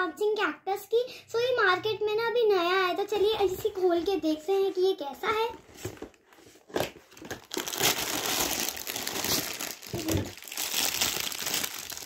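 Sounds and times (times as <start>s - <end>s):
plastic bag crinkling: 6.7s - 12.0s.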